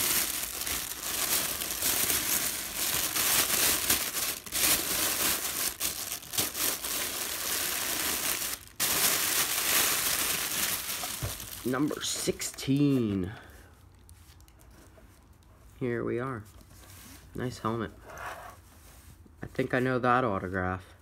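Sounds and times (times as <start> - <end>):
plastic bag crinkling: 0.0 - 15.5.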